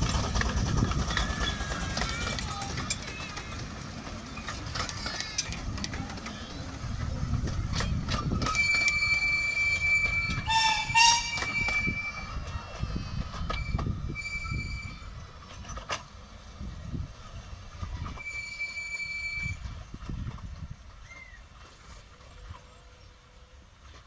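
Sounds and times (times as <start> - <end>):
low rolling rumble: 0.0 - 24.0
rail joint clicks: 0.0 - 24.0
train wheels squealing on rail: 0.9 - 5.6, 8.0 - 15.3, 18.0 - 20.0.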